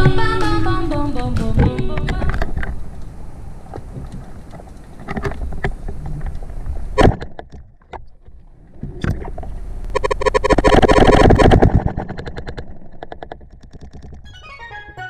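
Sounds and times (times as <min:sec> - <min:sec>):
diver gear clicks and knocks: 0:03.7 - 0:06.6, 0:11.4 - 0:14.3.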